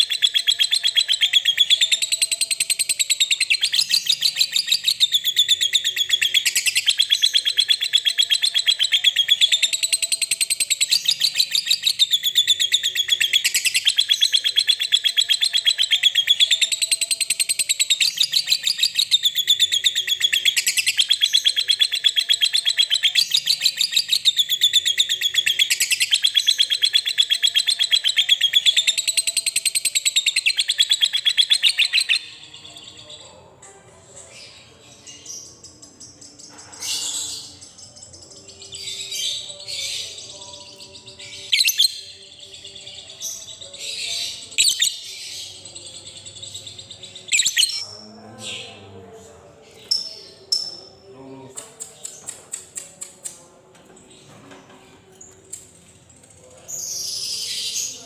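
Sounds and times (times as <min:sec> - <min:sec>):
lovebird rapid high-pitched trill: 0:00.0 - 0:32.6, 0:47.3 - 0:47.8.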